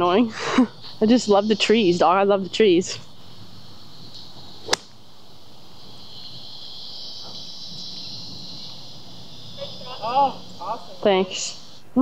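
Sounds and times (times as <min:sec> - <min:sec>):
high insect drone: 0:00.0 - 0:12.0
golf club striking ball: 0:04.6 - 0:05.0.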